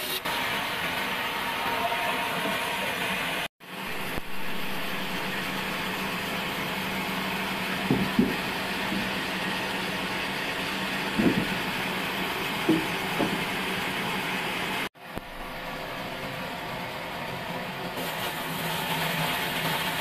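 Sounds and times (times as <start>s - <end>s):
band saw cutting timber: 3.8s - 14.9s
short knocks: 7.8s - 9.2s, 11.1s - 11.7s, 12.6s - 13.6s.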